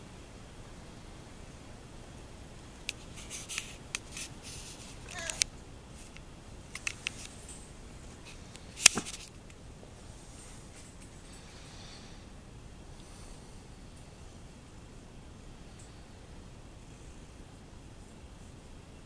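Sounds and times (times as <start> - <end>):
clicks and rustles: 2.8 - 9.6
kitten mewing: 5.0 - 5.5.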